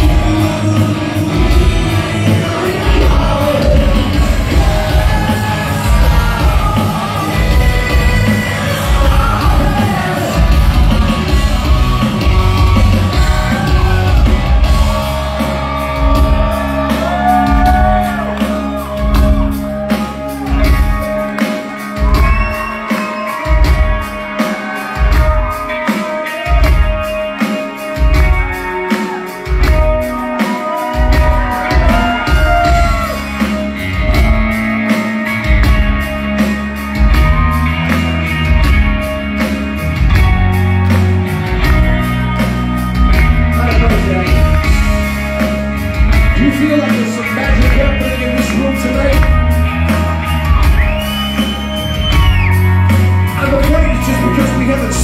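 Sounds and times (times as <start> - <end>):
man singing: 0.0 - 20.9, 43.4 - 45.0, 46.2 - 49.8, 53.3 - 55.0
live rock band playing: 0.0 - 55.0.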